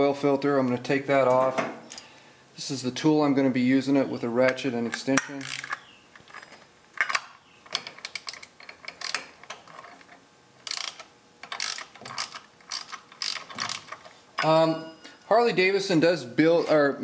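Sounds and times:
man speaking: 2.6s - 5.5s, 14.4s - 17.0s
hand ratchet clicking: 5.2s - 5.8s, 10.6s - 14.5s.

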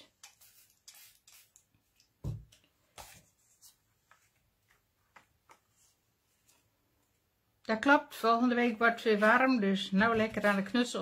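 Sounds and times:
water spray bottle spritzes: 0.2s - 1.7s.

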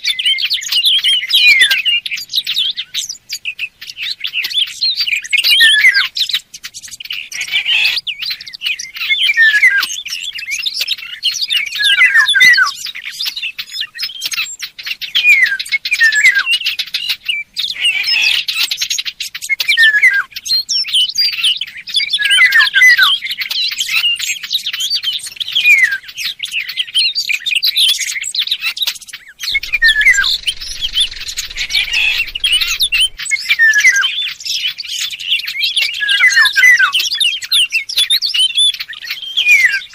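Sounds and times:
birds chirping rapidly: 25.3s - 39.9s
short falling whistles: 29.4s - 33.3s.

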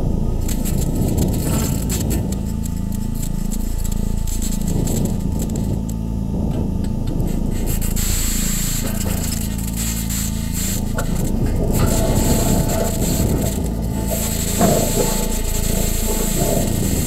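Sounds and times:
sweeping electronic drone: 0.0s - 17.0s
grainy crackling hiss: 7.3s - 17.0s.

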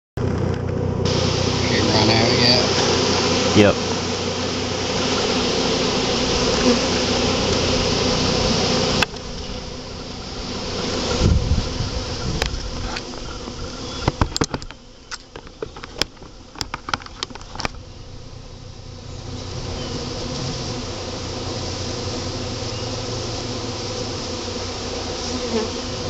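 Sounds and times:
bees buzzing: 0.2s - 26.0s
sharp knocks and clicks: 14.0s - 17.8s.

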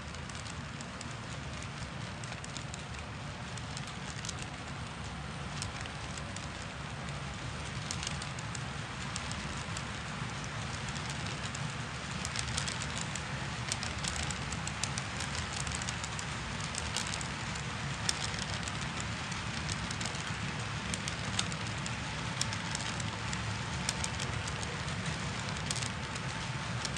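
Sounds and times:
model train wheels rumbling: 0.0s - 26.9s
small clicks and ticks: 0.0s - 26.9s.

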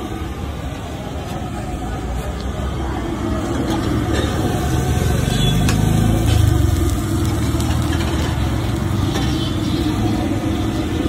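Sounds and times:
vehicle engine running: 2.6s - 11.0s.

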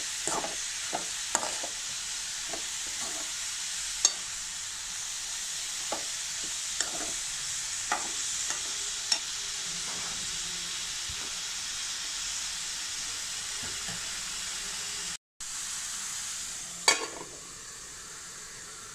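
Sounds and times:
metal spatula scraping a pan: 0.0s - 4.4s, 5.7s - 10.3s
food sizzling in a pan: 0.0s - 18.9s.

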